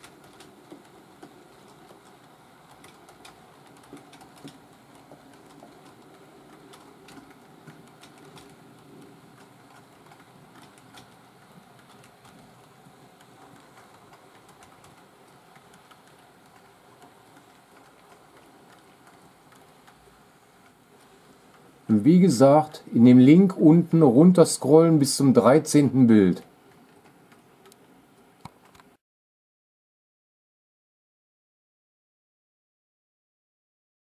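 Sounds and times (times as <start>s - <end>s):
light wheel clicks on rails: 0.0s - 22.0s, 26.3s - 29.0s
model train rolling on track: 0.0s - 27.8s.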